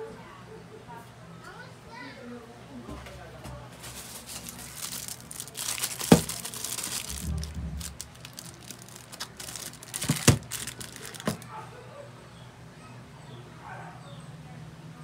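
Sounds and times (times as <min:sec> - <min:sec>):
cloth and wrapping rustling: 0:03.6 - 0:11.6.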